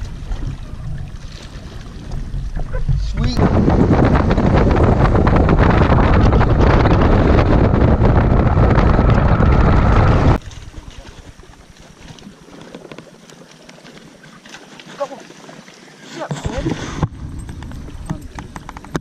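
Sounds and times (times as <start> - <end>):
wind buffeting microphone: 0.0 - 11.5, 16.5 - 19.0
boat motor and hull on water: 0.0 - 19.0.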